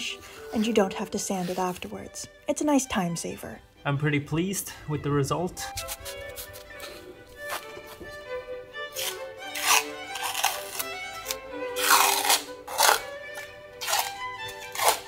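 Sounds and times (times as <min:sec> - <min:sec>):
background music: 0:00.0 - 0:15.0
peel ply tearing off fiberglass: 0:08.9 - 0:13.1, 0:13.8 - 0:15.0.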